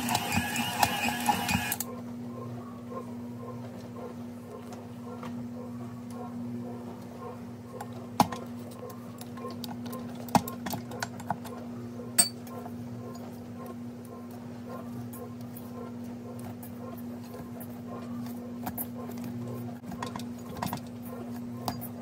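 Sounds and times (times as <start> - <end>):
metal bowl and dough hook clinking: 12.2 - 12.4.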